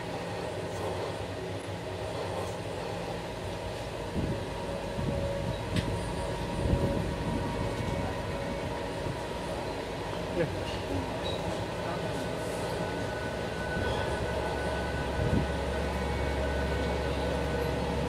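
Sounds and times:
wind buffeting microphone: 0:04.1 - 0:09.5, 0:15.0 - 0:15.8.

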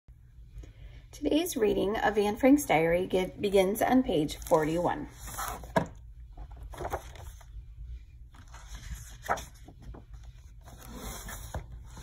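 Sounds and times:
steady low hum: 0:00.1 - 0:12.0
pages turning: 0:04.4 - 0:07.6, 0:08.3 - 0:12.0.

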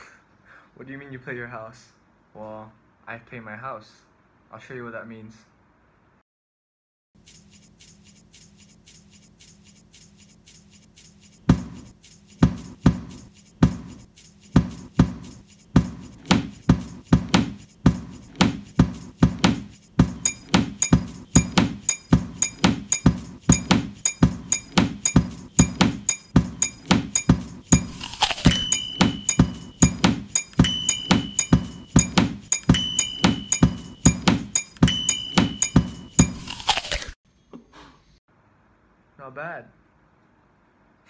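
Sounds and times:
hand percussion on household objects: 0:07.3 - 0:36.7
fork striking glass mug: 0:20.1 - 0:36.8.

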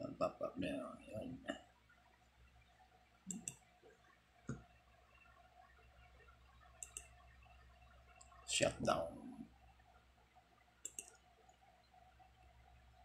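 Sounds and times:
faint steady hum: 0:00.0 - 0:13.0
computer mouse clicks: 0:03.3 - 0:03.7, 0:06.7 - 0:07.2, 0:10.8 - 0:11.7.

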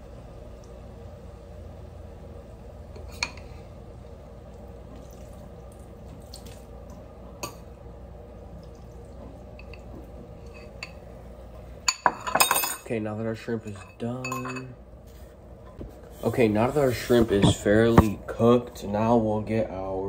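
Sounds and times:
steady low hum: 0:00.0 - 0:20.0
kitchen clicks and knocks: 0:17.3 - 0:18.2.

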